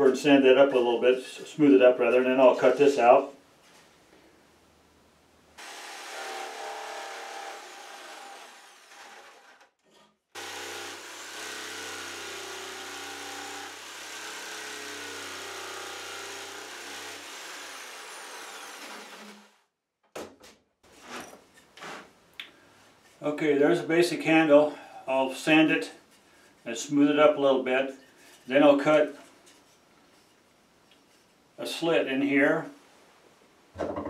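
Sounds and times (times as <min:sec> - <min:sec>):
jigsaw cutting wood: 0:05.6 - 0:09.7, 0:10.4 - 0:19.6.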